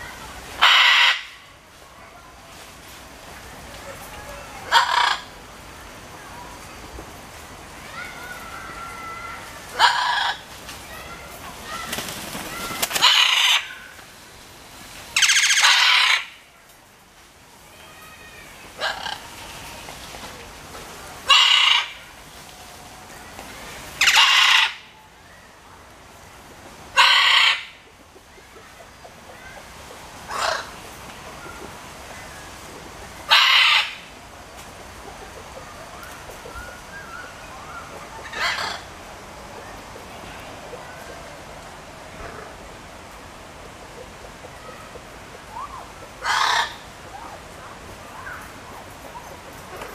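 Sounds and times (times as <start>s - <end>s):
macaw squawking: 0.6s - 1.4s, 4.7s - 5.3s, 12.5s - 13.8s, 15.2s - 16.4s, 21.3s - 22.0s, 24.0s - 24.9s, 27.0s - 27.8s, 33.3s - 34.1s, 45.6s - 46.9s
macaws squawking: 0.6s - 1.4s, 4.6s - 5.3s, 9.0s - 10.4s, 11.7s - 14.0s, 15.2s - 16.4s, 18.8s - 19.7s, 21.2s - 22.0s, 24.0s - 24.9s, 27.0s - 32.4s, 33.2s - 34.1s, 35.1s - 39.0s, 43.9s - 47.4s.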